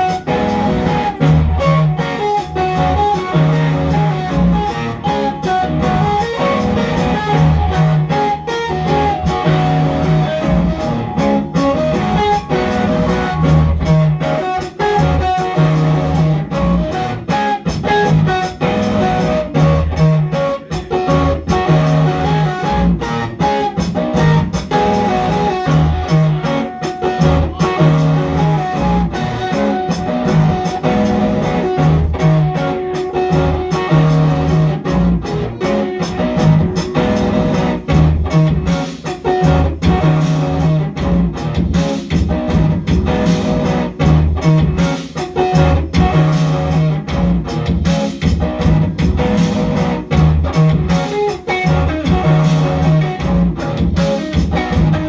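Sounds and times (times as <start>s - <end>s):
picked electric guitar notes: 0.0s - 55.0s.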